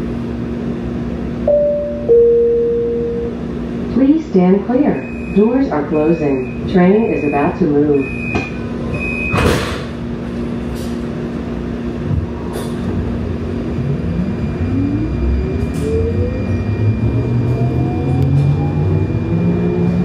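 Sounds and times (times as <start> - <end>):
train rumble: 0.0 - 20.0
train doors shutting thump: 9.3 - 10.0
traction motors whining: 12.2 - 20.0.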